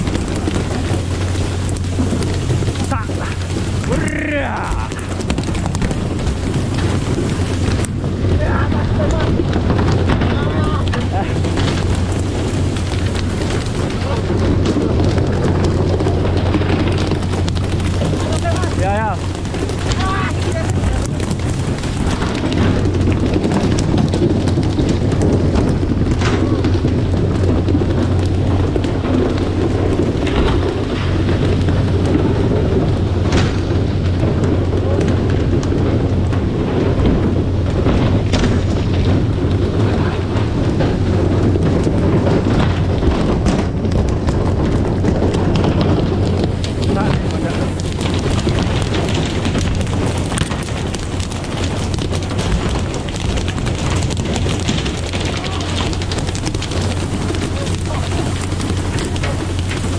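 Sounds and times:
boat engine hum: 0.0s - 59.9s
water rushing and splashing: 0.0s - 59.9s.

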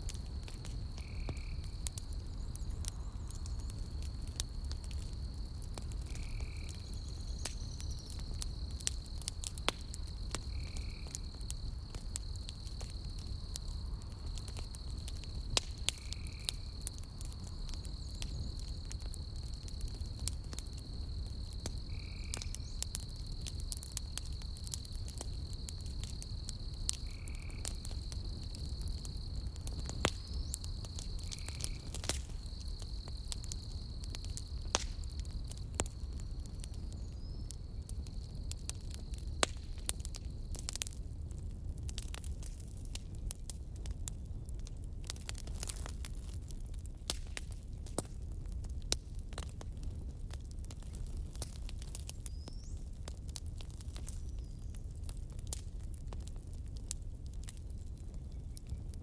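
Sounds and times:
night insects trilling: 0.0s - 40.9s
campfire crackling and popping: 0.0s - 59.0s.

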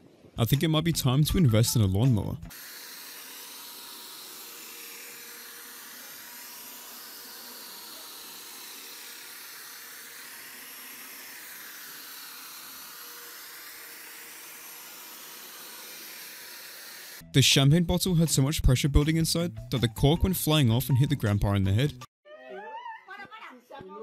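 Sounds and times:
angle grinder cutting grass: 2.5s - 17.3s.

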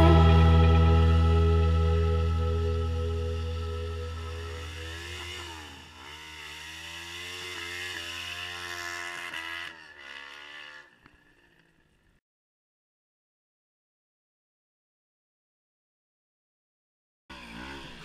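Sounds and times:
motorcycle engine revving hard: 4.2s - 11.0s, 17.3s - 18.0s.

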